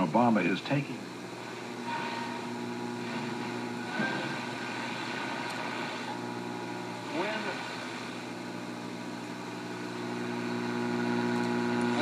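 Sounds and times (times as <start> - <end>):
radio static hiss and hum: 0.0 - 12.0
radio whistle: 1.7 - 6.3.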